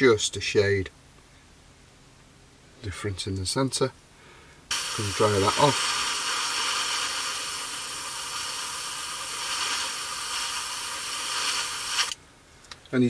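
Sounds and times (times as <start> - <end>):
airbrush hissing: 4.7 - 12.2.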